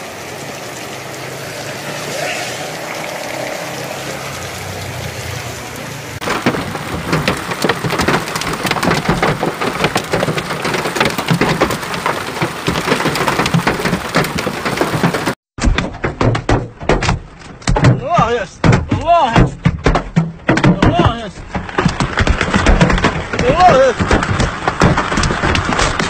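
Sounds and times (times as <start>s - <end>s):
pouring rain hiss: 0.0s - 9.9s
hail clattering on hard surfaces: 1.6s - 15.4s, 18.6s - 26.0s.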